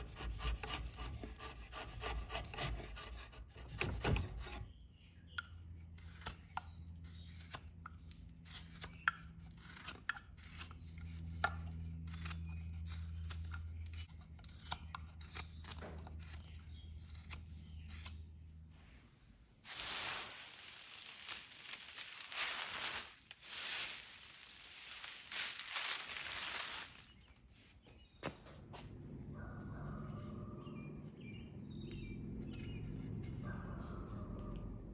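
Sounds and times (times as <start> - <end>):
knife slicing wood: 5.9 - 18.3
wood shavings crumpled by hand: 19.6 - 27.4.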